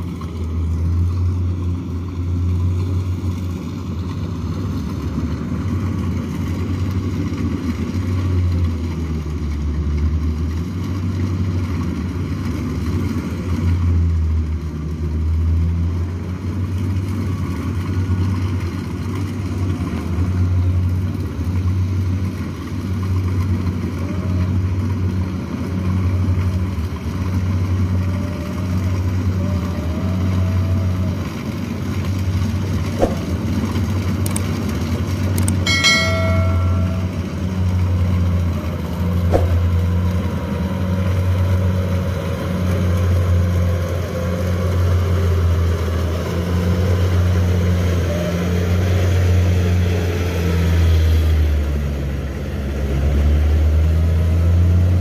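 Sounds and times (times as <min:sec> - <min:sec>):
diesel engine drone: 0:00.0 - 0:55.0
bell-like notification chime: 0:35.7 - 0:37.8.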